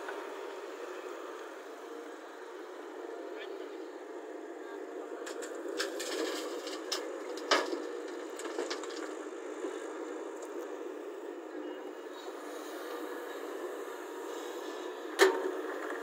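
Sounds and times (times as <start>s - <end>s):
excavator running: 0.0s - 16.0s
rocks clattering into truck bed: 5.4s - 9.2s.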